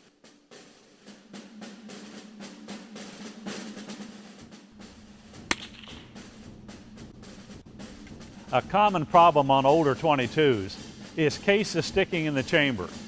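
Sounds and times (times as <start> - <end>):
theme music with snare roll: 0.0 - 13.0
rifle shot: 5.2 - 6.8.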